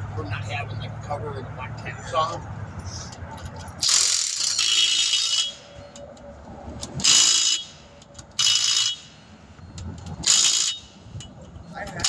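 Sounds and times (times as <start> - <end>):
pneumatic impact wrench bursts: 3.8 - 5.6, 7.0 - 7.8, 10.2 - 11.0.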